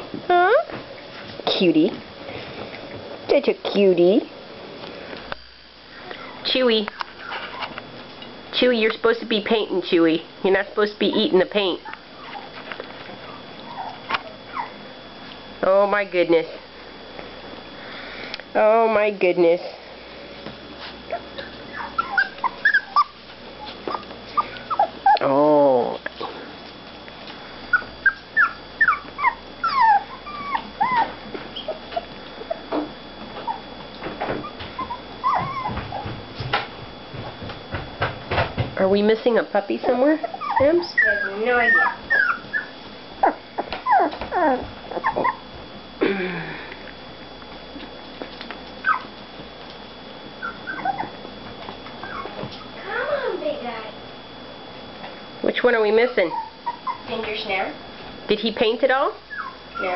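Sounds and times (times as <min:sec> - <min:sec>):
puppies whimpering and squealing: 0:06.2 - 0:07.8, 0:11.1 - 0:14.9, 0:21.1 - 0:25.5, 0:27.6 - 0:32.8, 0:33.4 - 0:36.2, 0:39.7 - 0:45.6, 0:48.8 - 0:49.2, 0:50.4 - 0:51.3, 0:52.0 - 0:52.8, 0:56.2 - 0:57.2, 0:59.2 - 0:59.9.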